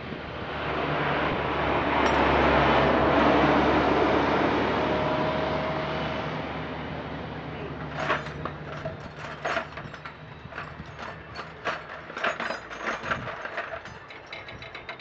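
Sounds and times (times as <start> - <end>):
metal clinks: 7.8 - 15.0.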